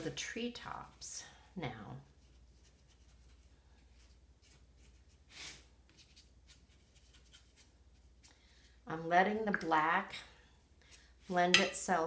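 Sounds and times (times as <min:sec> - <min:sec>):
brush swishing across paper: 0:02.0 - 0:08.6.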